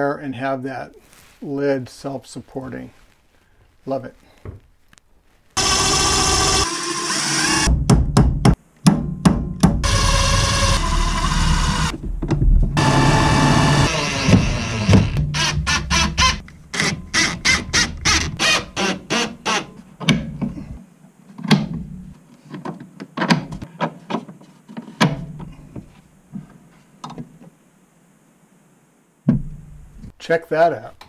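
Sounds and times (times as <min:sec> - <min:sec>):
wooden lid knocks and thunks: 0:29.3 - 0:29.6.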